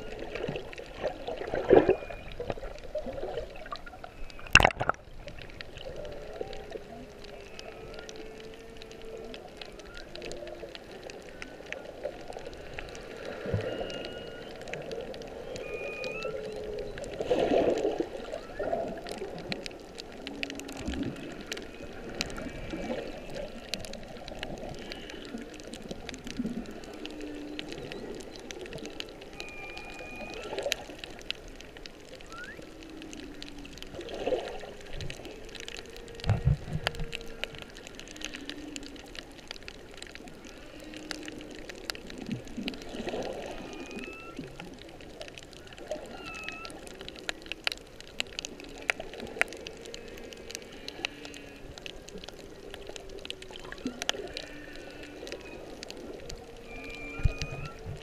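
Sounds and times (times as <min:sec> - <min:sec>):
crackle of clicks: 0:00.0 - 0:58.0
whale moans: 0:05.7 - 0:58.0
whistle-like tones: 0:13.4 - 0:14.6, 0:15.4 - 0:17.0, 0:18.3 - 0:18.9, 0:29.3 - 0:30.8, 0:32.2 - 0:33.0, 0:43.5 - 0:44.6, 0:46.1 - 0:46.8, 0:56.6 - 0:58.0.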